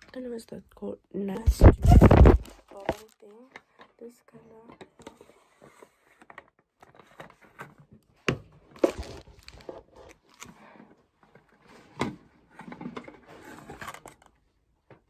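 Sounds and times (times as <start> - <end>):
plastic bottle rubbing and knocking: 1.4 - 3.1.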